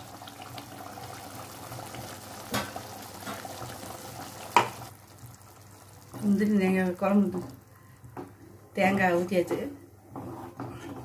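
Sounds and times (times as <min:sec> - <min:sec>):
curry bubbling and popping in a pan: 0:00.0 - 0:08.4.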